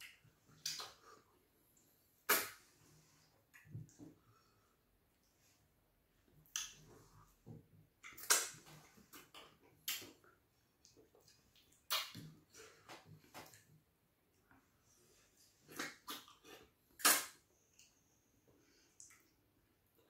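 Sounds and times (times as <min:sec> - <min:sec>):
soft chewing: 0:08.0 - 0:16.8
mouth smacking and slurping: 0:15.6 - 0:17.4.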